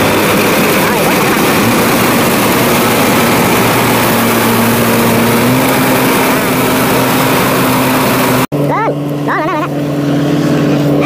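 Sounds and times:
harvester threshing clatter: 0.0s - 8.4s
diesel engine running: 0.0s - 11.0s.

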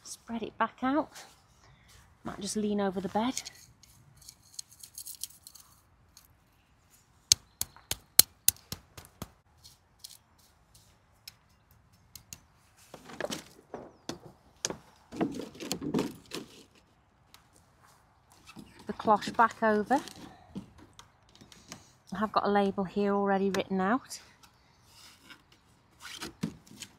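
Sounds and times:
plastic cloches rustling: 3.0s - 6.4s.

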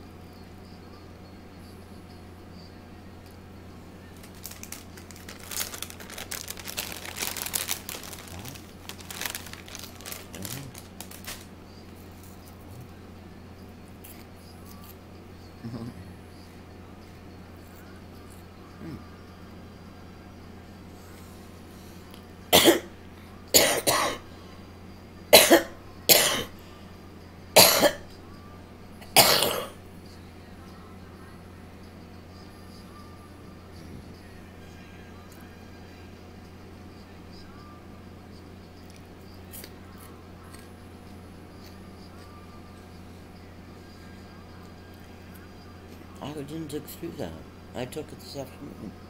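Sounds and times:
steady low hum: 0.0s - 49.0s
crinkling and rustling: 4.2s - 12.5s
person coughing: 22.5s - 22.9s, 23.6s - 24.2s, 25.3s - 26.5s, 27.6s - 28.0s, 29.1s - 29.8s.

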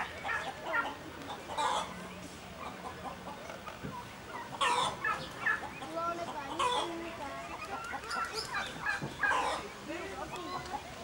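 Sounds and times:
chickens clucking: 0.0s - 11.0s
loud chicken call: 4.6s - 5.6s.

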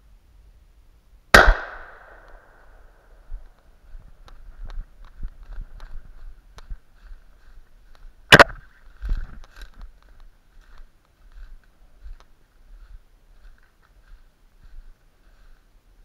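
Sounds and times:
sharp loud crack: 1.3s - 2.8s, 8.3s - 8.6s
footsteps through dry leaves: 3.8s - 16.0s.

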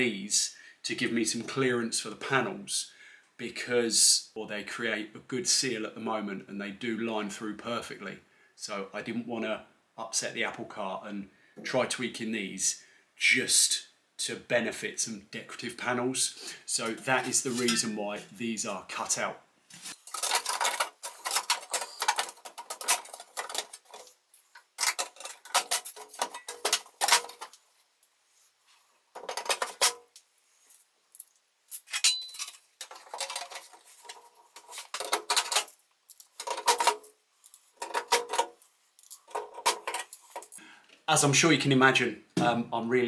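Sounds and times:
aluminium sheet clinking: 16.9s - 18.0s, 19.9s - 27.6s, 29.2s - 30.1s, 31.7s - 40.6s
metal fasteners rattling: 19.9s - 27.6s, 29.2s - 30.1s, 31.1s - 40.6s.

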